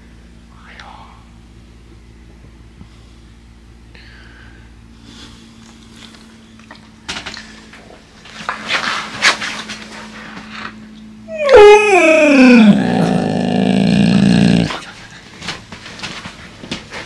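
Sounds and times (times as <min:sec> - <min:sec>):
dog howling moan: 0:11.3 - 0:14.9.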